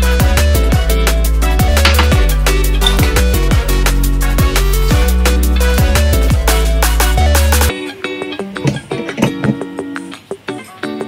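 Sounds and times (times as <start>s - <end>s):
electronic music with drum beat: 0.0s - 11.0s
sliding deep bass notes: 0.5s - 7.7s.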